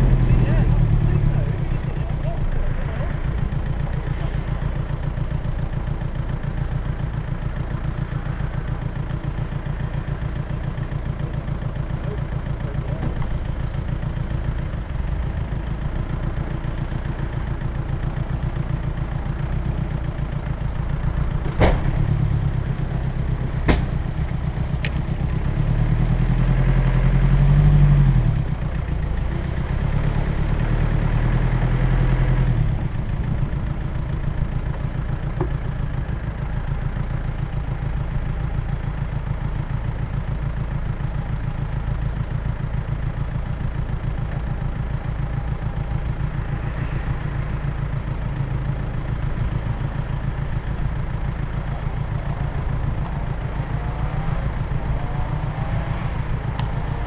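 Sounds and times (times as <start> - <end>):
engine revving: 0.0 - 3.4, 21.2 - 32.9, 50.4 - 57.0
engine running at low revs: 0.0 - 57.0
sharp knocks: 23.6 - 24.0.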